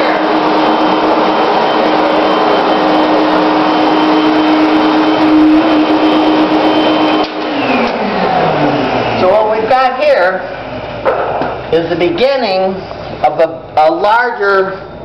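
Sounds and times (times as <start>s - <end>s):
vacuum cleaner motor whining: 0.0s - 11.0s.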